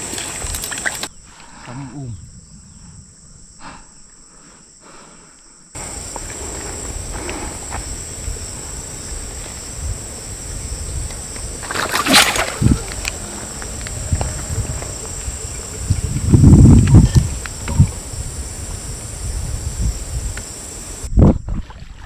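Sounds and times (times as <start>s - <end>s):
high insect drone: 0.0s - 21.1s
fishing line splashing through water: 11.6s - 13.7s.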